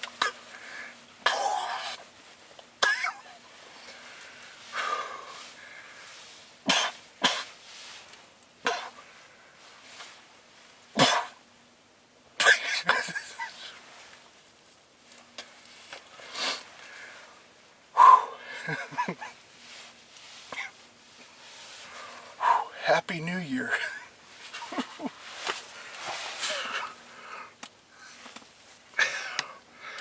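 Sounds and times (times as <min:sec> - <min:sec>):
man coughing: 0:02.8 - 0:03.4, 0:06.7 - 0:07.5, 0:11.0 - 0:11.4, 0:12.4 - 0:13.7, 0:20.5 - 0:20.8.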